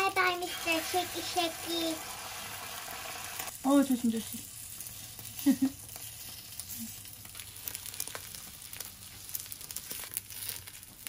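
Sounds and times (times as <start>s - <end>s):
food sizzling in frying pan: 0.0s - 11.0s.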